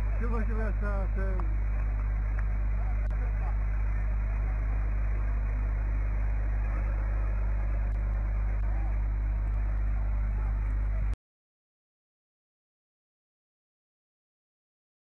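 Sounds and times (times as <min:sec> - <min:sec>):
deep rumble: 0:00.0 - 0:11.2.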